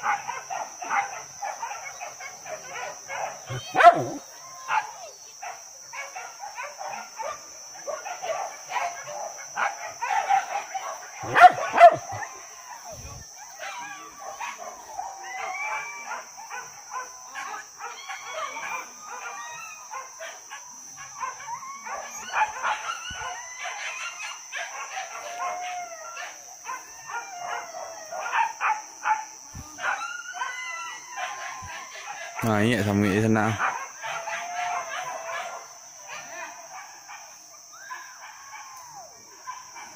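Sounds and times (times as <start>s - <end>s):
dogs baying and yelping: 0.0s - 39.9s.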